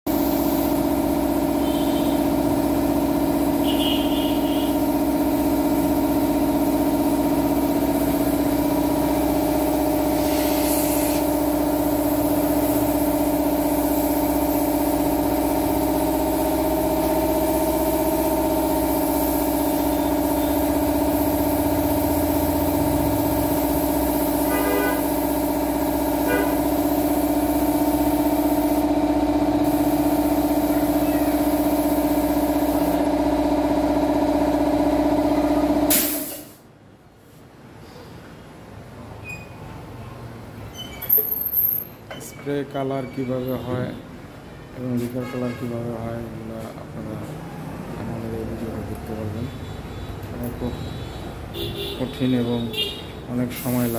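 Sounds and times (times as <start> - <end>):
spray gun hissing: 0.1 - 2.4, 5.5 - 33.1, 35.9 - 36.6
air compressor humming: 0.1 - 36.6.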